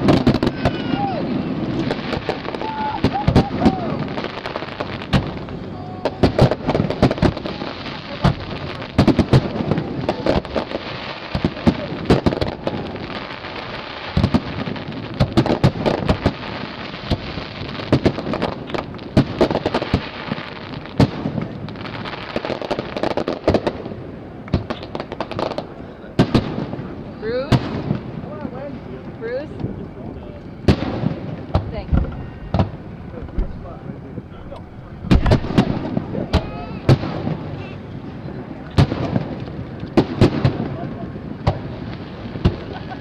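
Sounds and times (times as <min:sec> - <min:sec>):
firework shells bursting: 0:00.0 - 0:26.9, 0:30.5 - 0:37.7
crackling hiss: 0:00.0 - 0:43.0.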